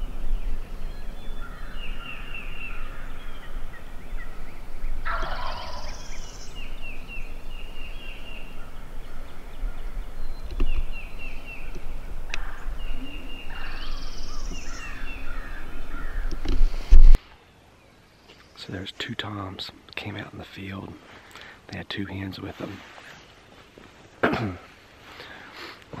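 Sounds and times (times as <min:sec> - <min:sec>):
small birds calling: 0:00.0 - 0:25.8
turkeys gobbling: 0:05.0 - 0:06.0.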